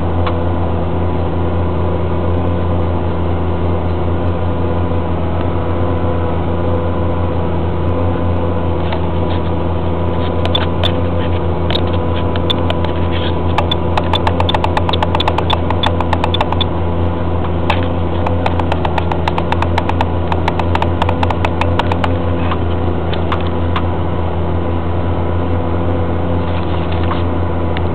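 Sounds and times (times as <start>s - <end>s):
tractor engine under load: 10.0s - 23.7s
rapid clicking and rattling: 11.7s - 16.7s, 17.7s - 22.2s.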